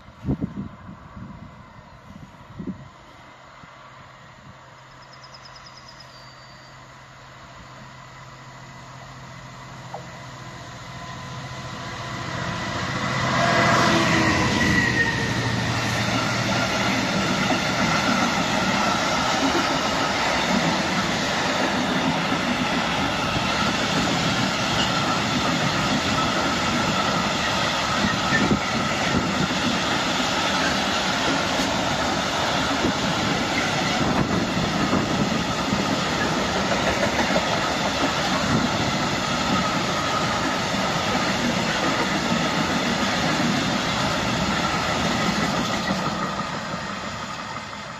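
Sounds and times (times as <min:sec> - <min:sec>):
diesel locomotive engine hum: 0:00.0 - 0:47.9
freight wagons rumbling on rails: 0:09.6 - 0:47.9.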